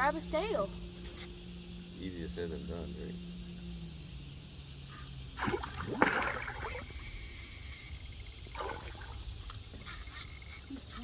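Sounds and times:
water splashing: 0:05.3 - 0:07.5, 0:08.4 - 0:09.5.

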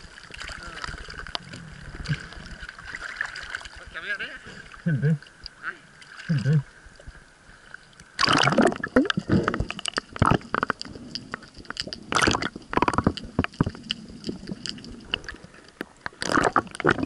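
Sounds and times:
seawater sloshing and bubbling: 0:00.0 - 0:17.0
sharp crackles and clicks: 0:08.2 - 0:17.0.

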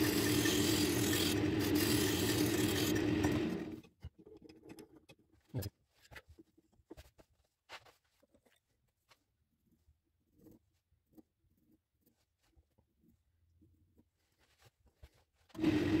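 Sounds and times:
chisel cutting wood hiss: 0:00.0 - 0:03.3
wood lathe humming: 0:00.0 - 0:03.8.

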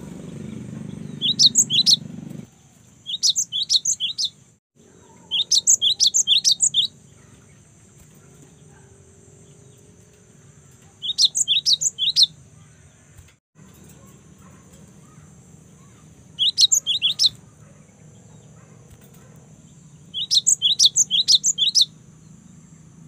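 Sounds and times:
bird chirping rapidly: 0:00.0 - 0:08.8, 0:09.4 - 0:22.9.

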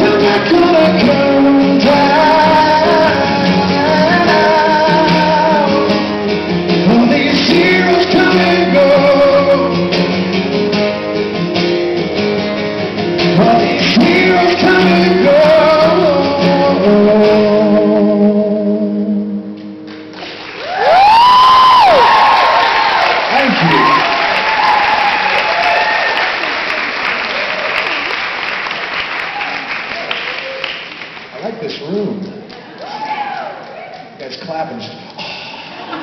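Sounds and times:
acoustic guitars strumming: 0:00.0 - 0:20.5.

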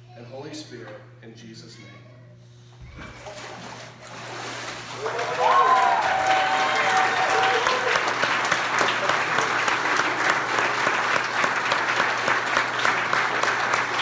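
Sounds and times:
crowd applauding: 0:04.9 - 0:14.0.

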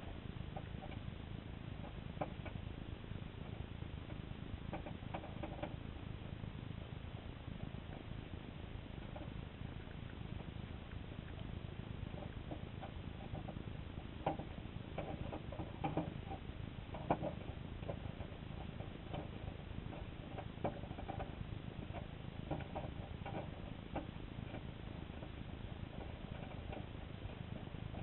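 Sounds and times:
small underwater clicks: 0:07.5 - 0:28.0.

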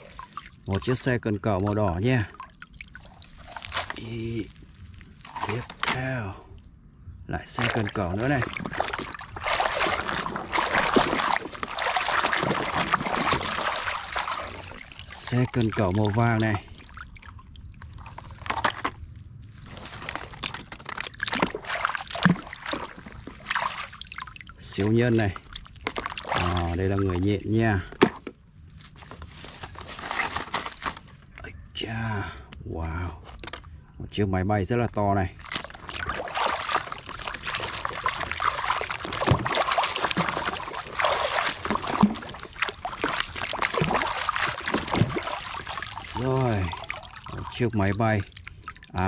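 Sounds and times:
hand splashing in water tub: 0:00.0 - 0:06.4, 0:07.5 - 0:18.9, 0:19.8 - 0:27.3, 0:35.4 - 0:49.0.

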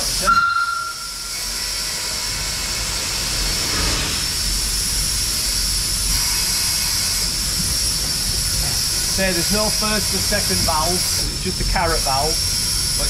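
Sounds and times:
high-pitched squeal: 0:00.0 - 0:02.5
steam hiss: 0:00.0 - 0:13.0.

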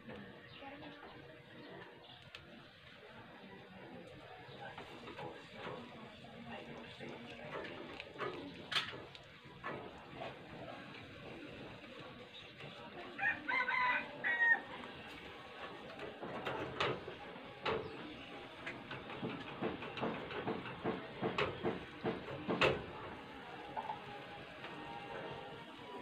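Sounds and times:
rooster crowing: 0:13.2 - 0:14.8.

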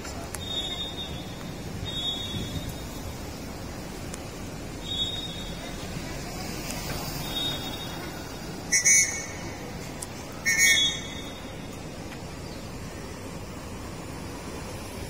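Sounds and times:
whistle blasts: 0:00.4 - 0:03.1, 0:04.8 - 0:05.6, 0:07.2 - 0:08.1, 0:08.7 - 0:09.5, 0:10.4 - 0:11.6.

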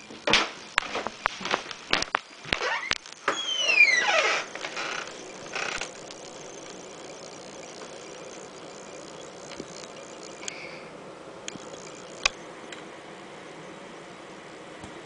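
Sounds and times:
faint clicks: 0:04.4 - 0:10.8, 0:11.4 - 0:12.9.

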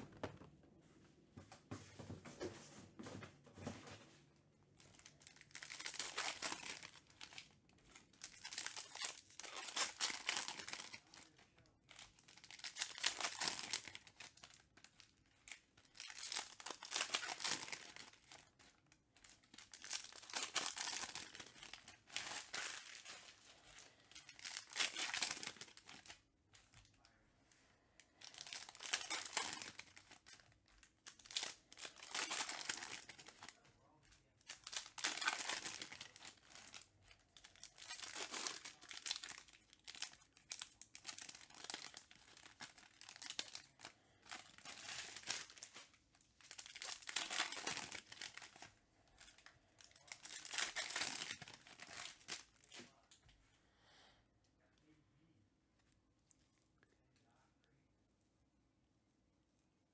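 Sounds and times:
card pack wrappers crinkling: 0:04.8 - 0:26.9, 0:28.1 - 0:53.1.

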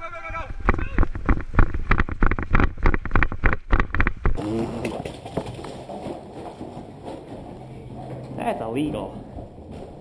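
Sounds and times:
running footsteps: 0:00.0 - 0:10.0.

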